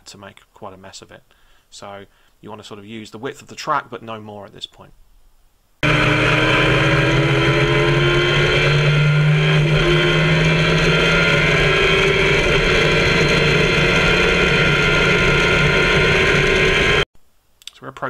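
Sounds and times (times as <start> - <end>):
engine accelerating hard: 5.8 - 17.1.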